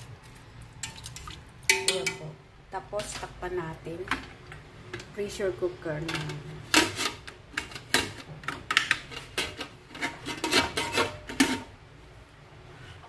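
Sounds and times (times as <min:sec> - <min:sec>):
metal lid clicks and scrapes: 0:06.0 - 0:11.7.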